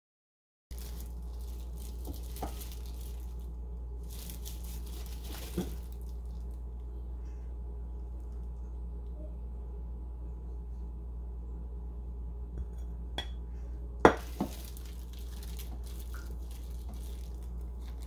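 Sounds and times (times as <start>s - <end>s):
faint scraping and rustling: 0.7s - 7.4s, 14.2s - 18.0s
steady low hum: 0.7s - 18.0s.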